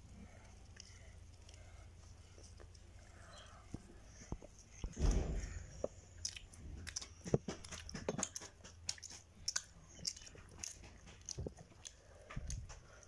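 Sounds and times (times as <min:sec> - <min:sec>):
children chewing crunchy bread: 0:00.0 - 0:13.0.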